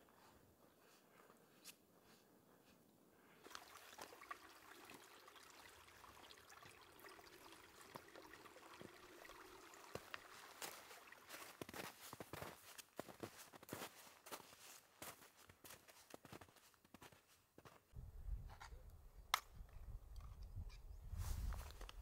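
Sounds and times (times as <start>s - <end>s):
stream trickling over stones: 3.4s - 12.8s
footsteps on stony ground: 10.6s - 18.0s.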